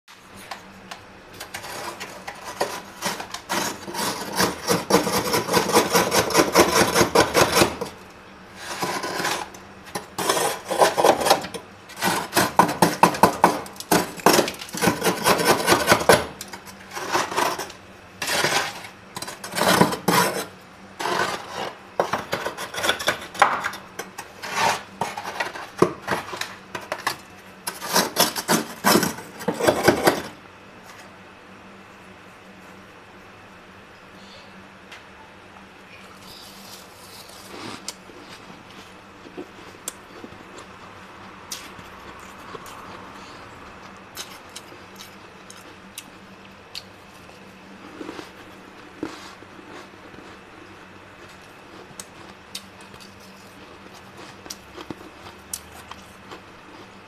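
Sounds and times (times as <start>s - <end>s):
freezer frost being scraped: 1.3s - 30.4s, 36.2s - 39.7s, 47.8s - 52.4s.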